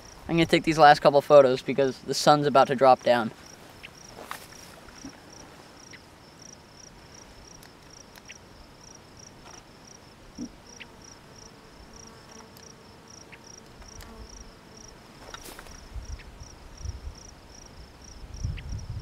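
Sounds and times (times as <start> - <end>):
insect chirping: 0.0 - 0.8, 1.4 - 19.0
faint clicks: 7.5 - 8.4.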